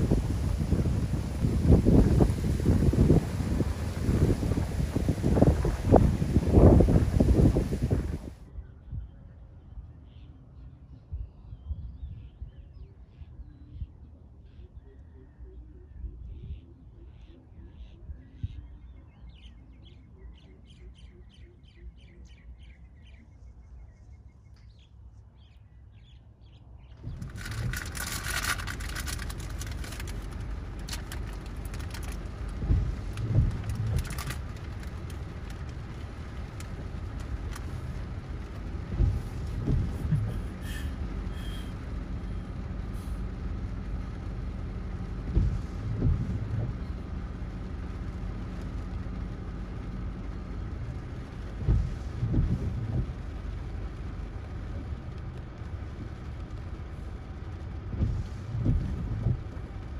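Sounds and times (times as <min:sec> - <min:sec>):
rain: 0:00.0 - 0:08.5, 0:27.0 - 0:59.9
strong wind buffeting microphone: 0:00.0 - 0:09.4, 0:26.9 - 0:59.9.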